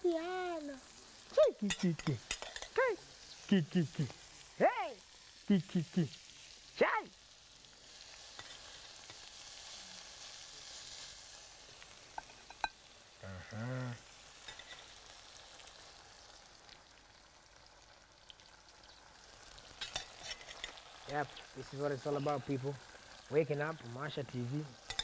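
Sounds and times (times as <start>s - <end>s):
sauce sizzling in pan: 0.0s - 25.0s
metal spoon clinks: 1.7s - 2.8s
person humming: 2.8s - 4.2s, 5.5s - 6.2s, 13.2s - 14.0s.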